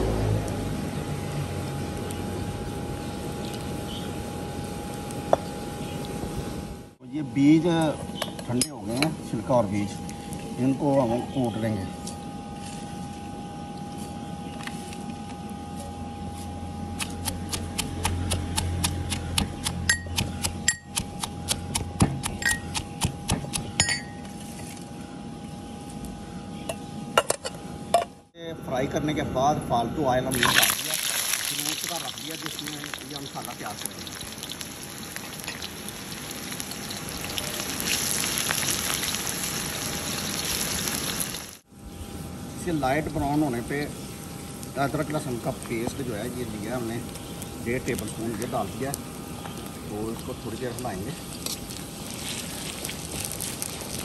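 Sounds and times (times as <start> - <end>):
onions sizzling in hot oil: 0.0 - 6.4, 30.3 - 41.6, 42.6 - 54.0
soft handling of seeds: 51.0 - 54.0.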